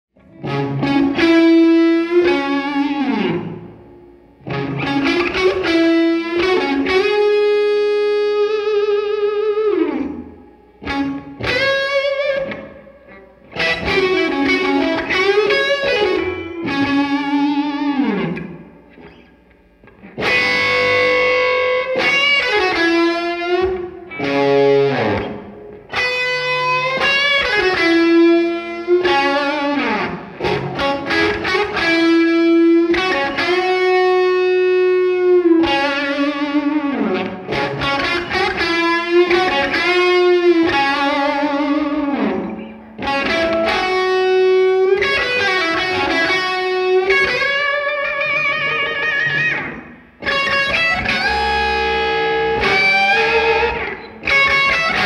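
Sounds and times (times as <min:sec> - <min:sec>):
electric guitar lead phrases: 0:00.2 - 0:55.0.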